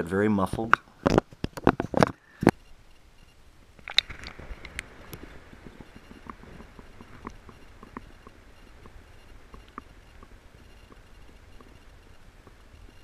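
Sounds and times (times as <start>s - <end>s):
splash into water: 3.8s - 4.9s
muffled underwater rumble: 3.9s - 13.0s.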